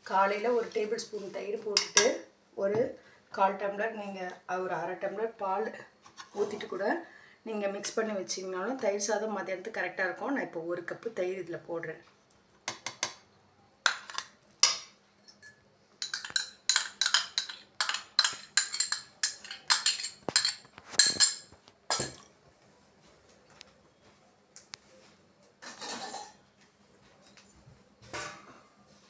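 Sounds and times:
metal spatula scraping a pan: 25.6s - 26.4s.

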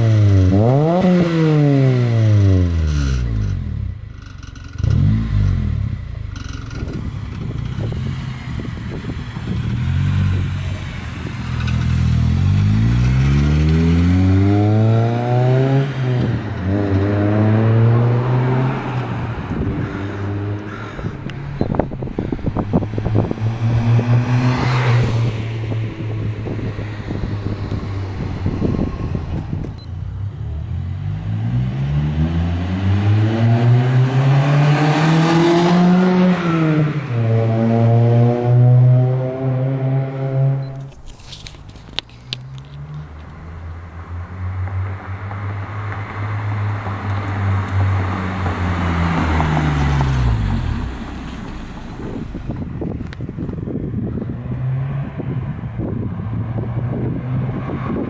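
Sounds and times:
car engine revving: 0.0s - 41.0s
car exhaust accelerating: 0.0s - 58.0s.

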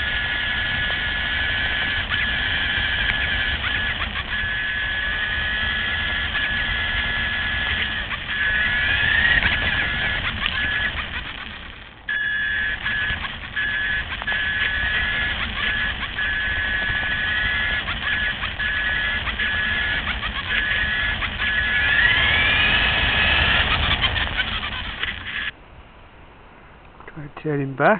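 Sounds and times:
tyres rumbling on grit: 0.0s - 25.5s
electric motor whining: 0.0s - 25.6s.

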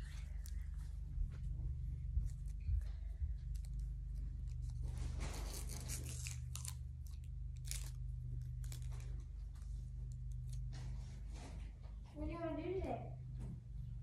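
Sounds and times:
steady low hum: 0.0s - 14.0s
wrapper tearing: 4.6s - 9.2s.

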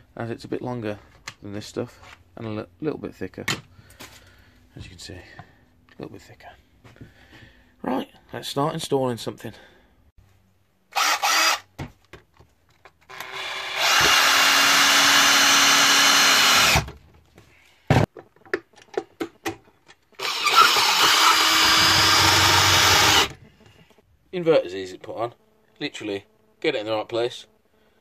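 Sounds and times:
cordless drill driving screws: 10.9s - 11.7s, 13.1s - 16.9s, 20.2s - 23.4s
drill click: 10.9s - 11.7s, 13.1s - 16.8s, 20.2s - 23.4s.

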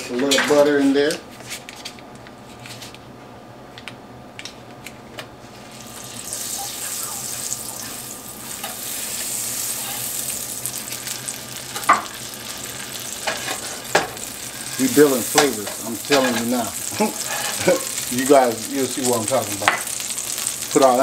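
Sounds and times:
butter sizzling in oil: 5.6s - 21.0s.

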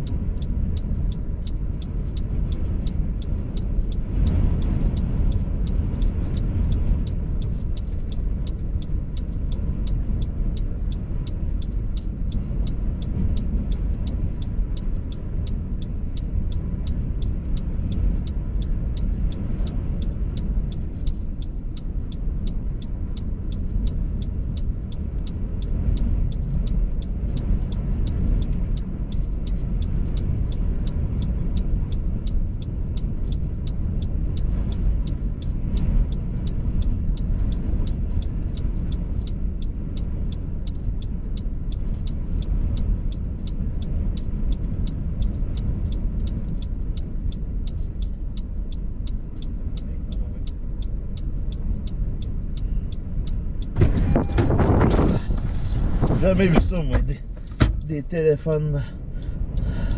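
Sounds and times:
faint even ticking: 0.0s - 59.9s
wind buffeting a car: 0.0s - 59.9s.

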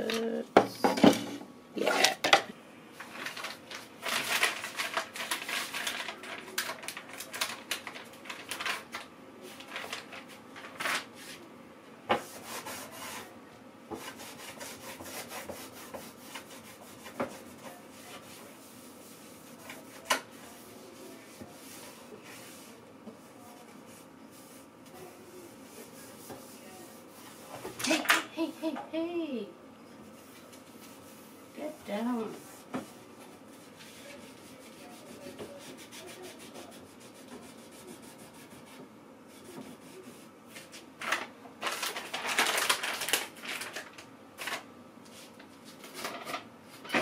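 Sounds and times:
items rustling in wooden drawer: 0.1s - 11.1s, 41.0s - 44.7s.

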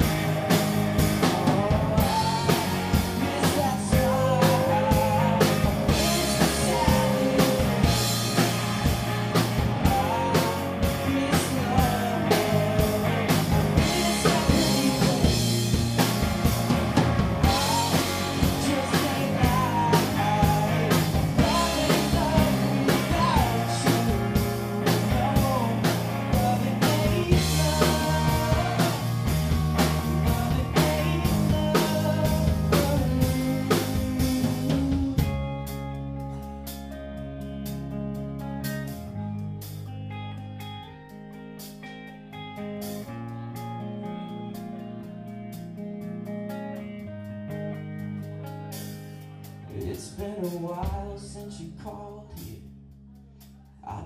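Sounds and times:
electric guitar chords: 0.0s - 51.2s
rock band playing: 0.0s - 51.4s
guitar chords ringing: 35.2s - 49.7s
lead guitar bending notes: 35.2s - 49.7s.

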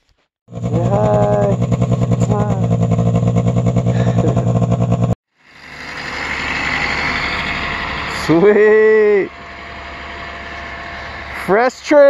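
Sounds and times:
rough engine: 0.5s - 12.0s
snowmobile engine idling: 0.5s - 12.0s.

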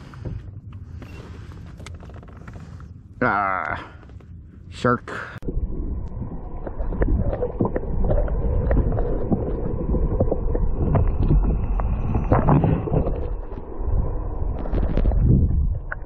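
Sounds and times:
muffled underwater rumble: 0.0s - 16.0s
underwater clicks and knocks: 6.0s - 13.8s.

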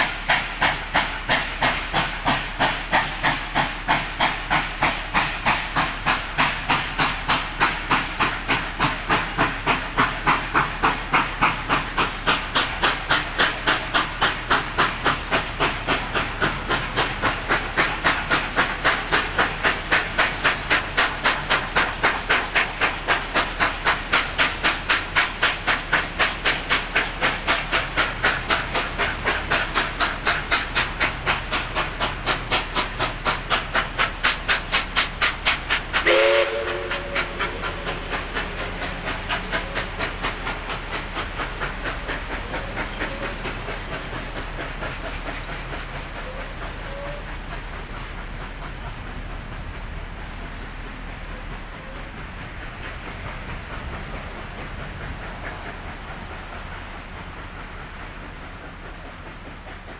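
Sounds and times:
steam locomotive chuffing: 0.0s - 59.9s
steam whistle blast: 36.0s - 37.4s.

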